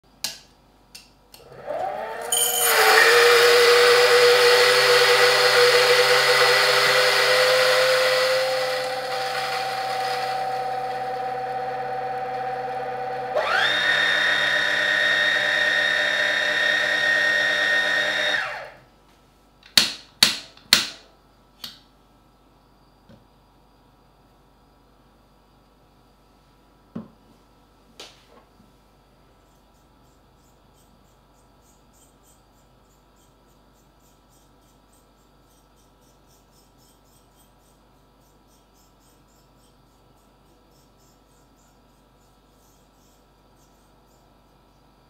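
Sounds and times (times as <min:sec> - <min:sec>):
coffee grinder grinding: 0:01.4 - 0:18.8.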